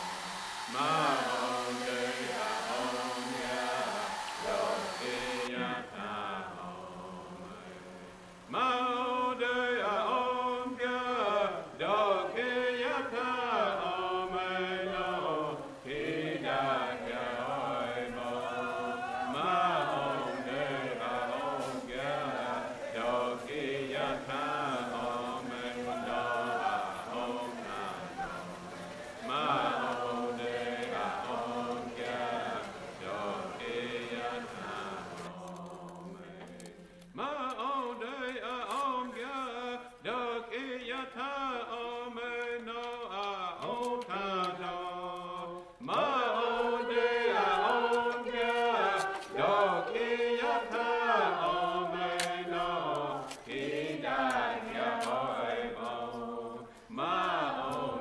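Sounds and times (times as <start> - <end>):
group of voices chanting: 0.0 - 8.0, 10.2 - 36.4, 45.8 - 58.0.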